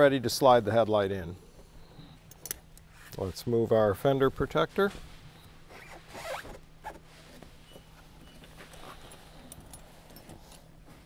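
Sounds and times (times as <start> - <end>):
handling noises: 4.7 - 11.0.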